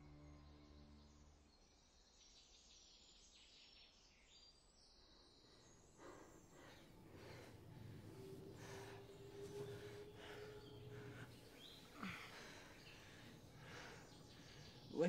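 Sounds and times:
faint bird chirps: 0.1 - 15.0
low music drone: 6.0 - 15.0.

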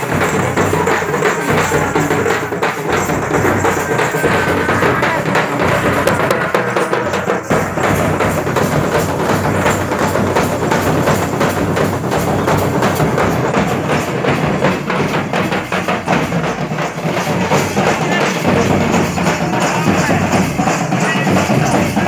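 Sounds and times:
loud music with fast drumming: 0.0 - 22.0
tambourine-like jingle: 0.0 - 22.0.

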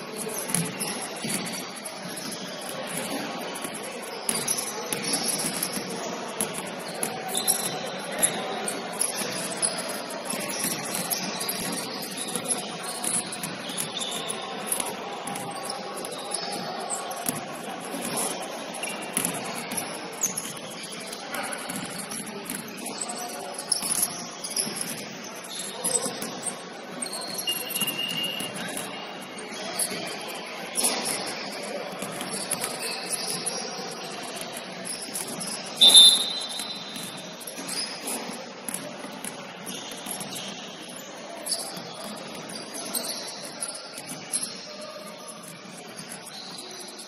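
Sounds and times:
basketballs bouncing on wood floor: 0.1 - 29.0, 30.8 - 47.0
high-pitched shoe squeaks: 0.2 - 38.9, 39.6 - 47.0.

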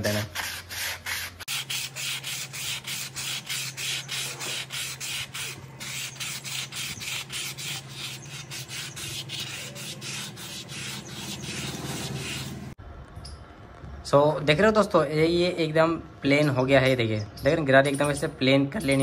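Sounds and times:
sandpaper scraping on steel: 0.0 - 12.8.

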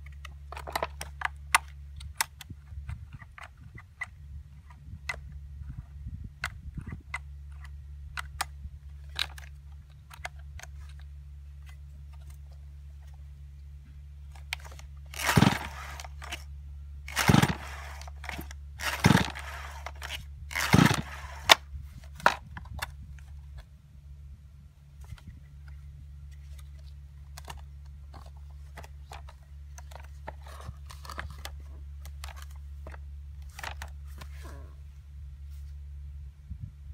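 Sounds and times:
chainsaw recoil starter pulls: 14.3 - 16.5, 17.1 - 22.9.

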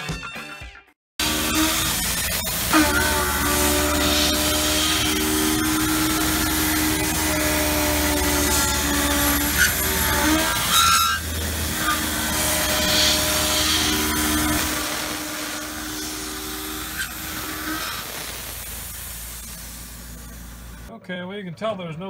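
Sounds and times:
spindle tones: 1.2 - 18.1
mill cutting steel hiss: 1.2 - 20.9.

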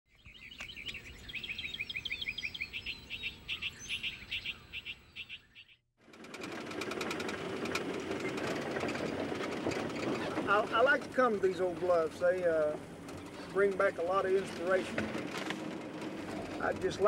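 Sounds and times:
bird chirping rapidly: 0.2 - 5.9
pickup truck engine running: 6.0 - 17.0.

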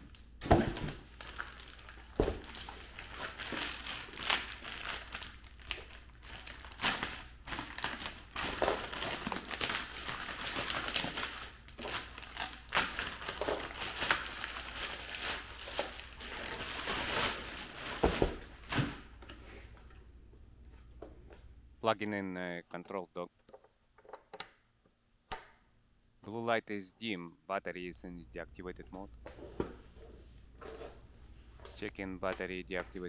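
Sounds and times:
plastic bag crinkling: 0.8 - 18.7.

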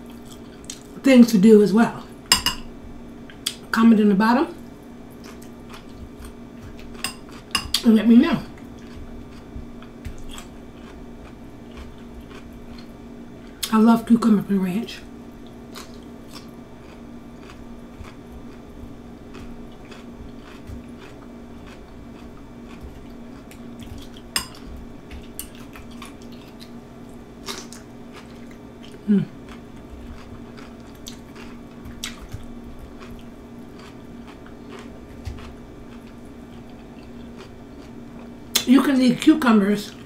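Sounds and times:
steady low hum: 0.0 - 40.0
fork clinking in glass bowl: 2.3 - 2.6
soft chewing: 4.6 - 13.7, 15.4 - 38.7.

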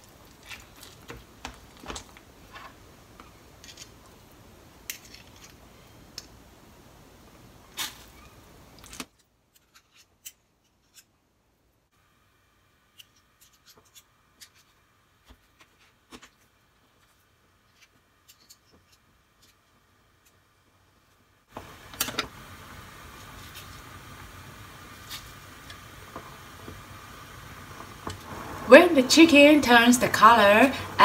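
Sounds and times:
low background hiss: 16.0 - 31.0.

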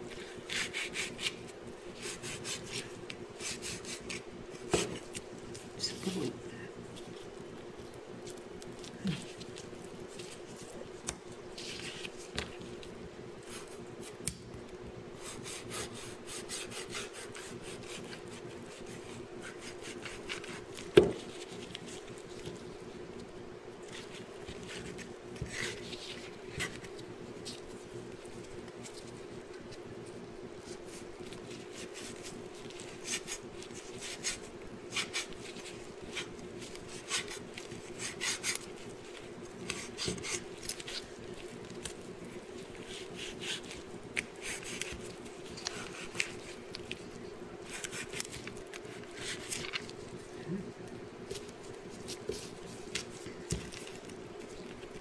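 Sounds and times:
low steady hum: 0.0 - 55.0
cleaver scraping fish skin: 0.1 - 5.2.

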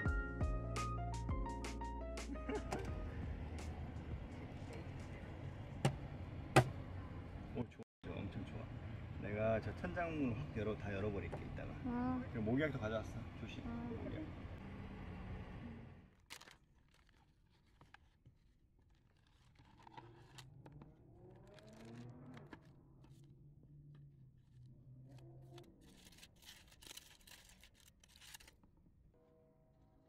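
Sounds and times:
aluminium foil crinkling: 16.2 - 20.4, 25.8 - 28.6.

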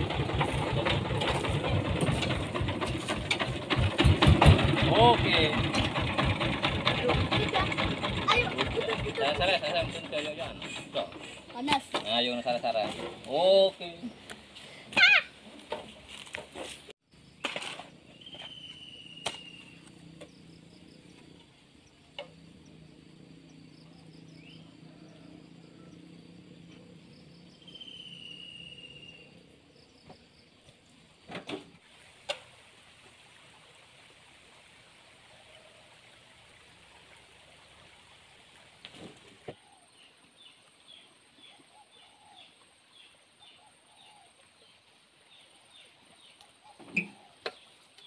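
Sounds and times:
whistled bird calls: 18.1 - 19.9, 27.5 - 29.4.

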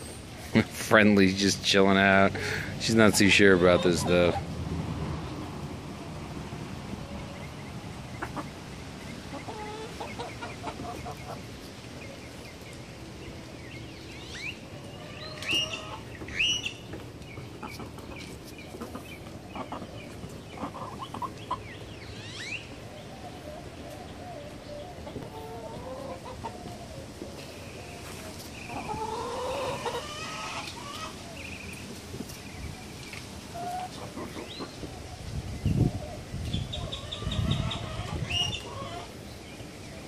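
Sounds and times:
hens clucking: 0.6 - 4.6, 8.0 - 12.7, 14.6 - 35.1, 36.0 - 39.2
hens squawking: 2.0 - 4.5, 9.3 - 11.7, 14.4 - 31.5, 33.5 - 39.2.

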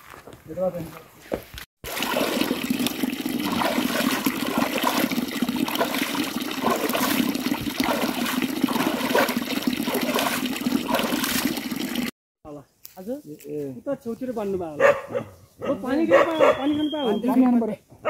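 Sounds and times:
water rushing and splashing: 1.8 - 12.2.

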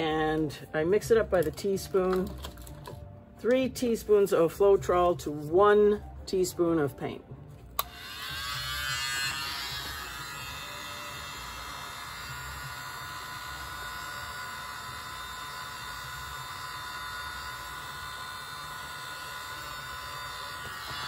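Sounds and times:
mini leaf blower whine: 7.8 - 21.0.

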